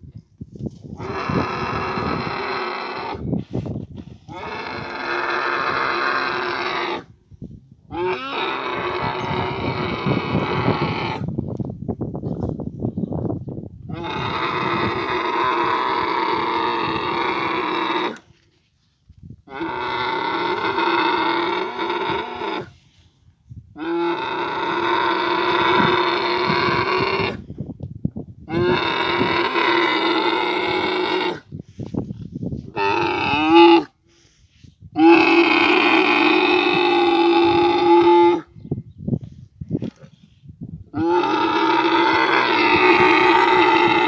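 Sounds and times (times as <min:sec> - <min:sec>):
camel bellowing: 0:01.0 - 0:07.2, 0:07.9 - 0:11.4, 0:13.9 - 0:18.2, 0:19.5 - 0:22.8, 0:23.8 - 0:27.5, 0:28.5 - 0:31.5, 0:32.7 - 0:33.9, 0:35.0 - 0:38.5, 0:40.9 - 0:44.0.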